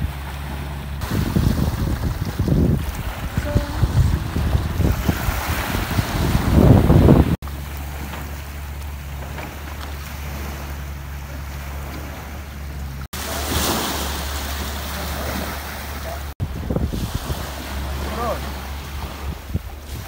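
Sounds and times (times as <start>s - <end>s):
wind buffeting microphone: 0.0s - 10.9s, 11.6s - 20.0s
low hum: 0.0s - 13.4s
water washing up slipway: 0.0s - 20.0s.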